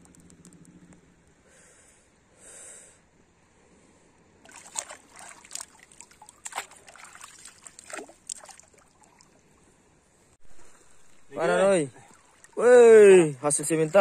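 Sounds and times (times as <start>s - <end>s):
shallow water splashing: 4.4s - 14.0s.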